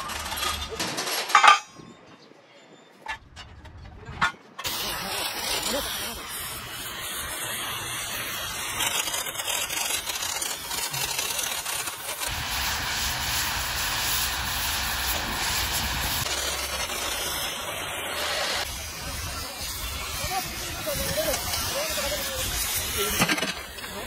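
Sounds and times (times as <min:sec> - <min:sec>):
cutting torch hissing: 0:04.6 - 0:24.0.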